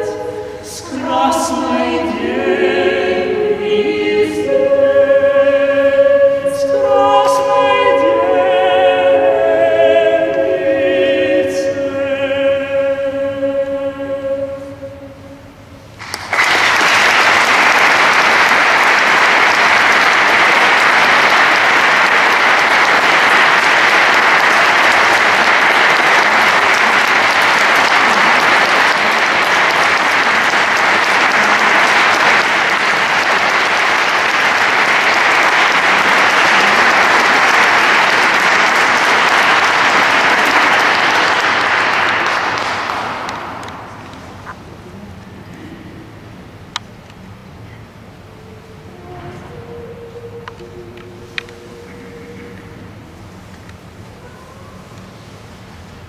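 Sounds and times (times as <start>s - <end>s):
audience applauding: 16.0s - 44.5s.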